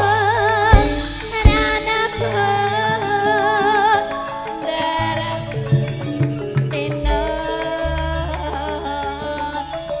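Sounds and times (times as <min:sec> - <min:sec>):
person singing with vibrato: 0:00.0 - 0:05.7
gamelan ensemble: 0:00.0 - 0:10.0
low drum strokes: 0:00.7 - 0:03.1.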